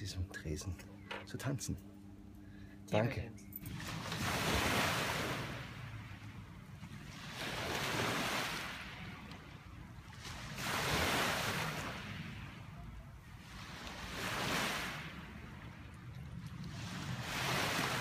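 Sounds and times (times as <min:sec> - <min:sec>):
waves washing onto pebble shore: 0:10.3 - 0:12.2, 0:16.8 - 0:18.0.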